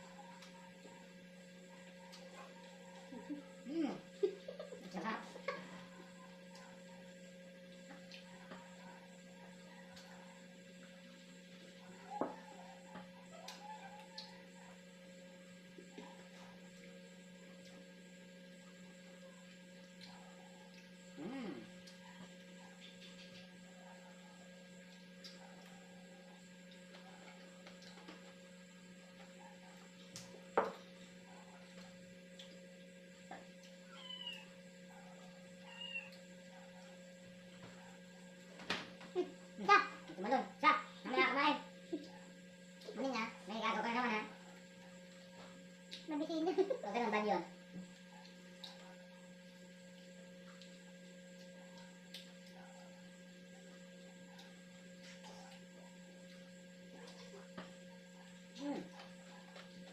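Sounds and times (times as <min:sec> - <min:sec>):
electrical hum: 0:00.0 - 0:59.9
cat meowing: 0:33.9 - 0:34.5.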